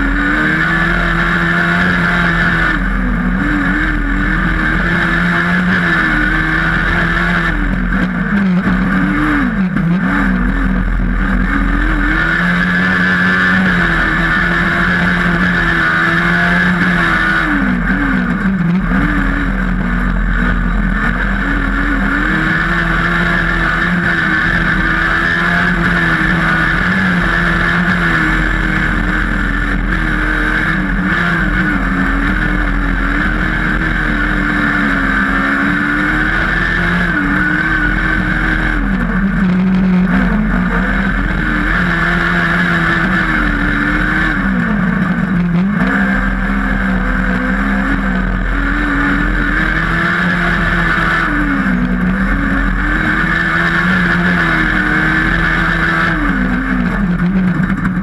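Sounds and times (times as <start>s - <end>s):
buggy engine at high revs: 0.0s - 58.0s.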